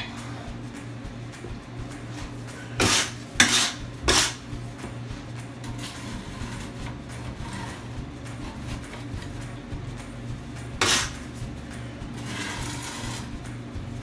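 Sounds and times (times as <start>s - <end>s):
steady low hum: 0.0s - 14.0s
trowel scraping tile adhesive: 2.8s - 4.4s, 12.2s - 13.3s.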